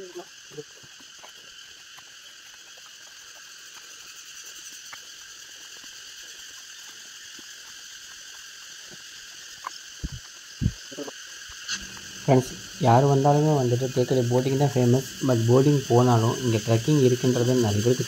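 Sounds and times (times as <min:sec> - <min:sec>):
insects buzzing shrilly: 0:00.0 - 0:18.0
dull thumps: 0:10.0 - 0:10.8.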